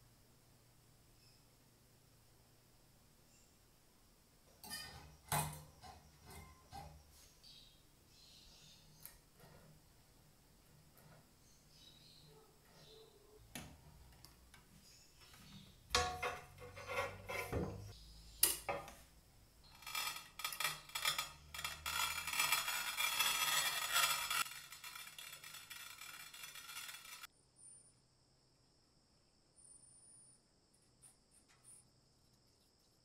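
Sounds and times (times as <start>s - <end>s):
metal clinking on ceramic tile: 4.6s - 6.8s, 19.7s - 27.3s
tile cutter scraping tile: 15.5s - 18.0s, 19.7s - 27.3s.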